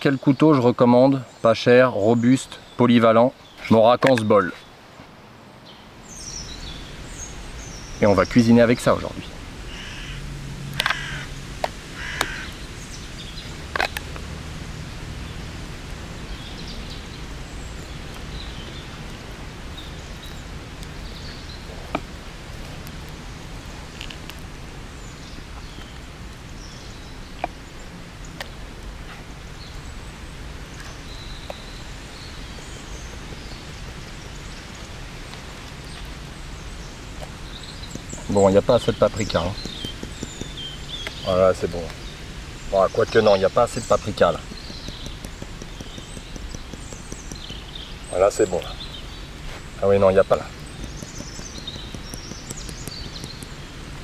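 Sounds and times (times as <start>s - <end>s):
forest background noise: 0.0s - 54.0s
faint bird calls: 9.7s - 11.3s, 11.9s - 13.5s
wood fire crackles: 11.5s - 54.0s.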